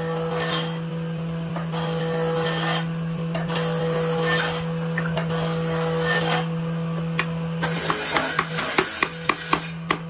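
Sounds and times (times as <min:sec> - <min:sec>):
hand tool scraping wooden boards: 0:01.8 - 0:06.5, 0:07.6 - 0:10.0
steady low hum: 0:02.8 - 0:10.0.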